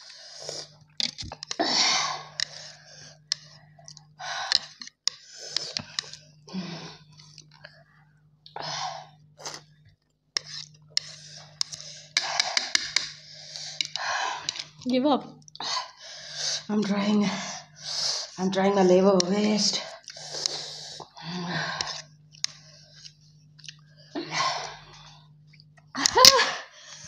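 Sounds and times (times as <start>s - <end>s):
noodles being slurped: 10.4s - 14.8s.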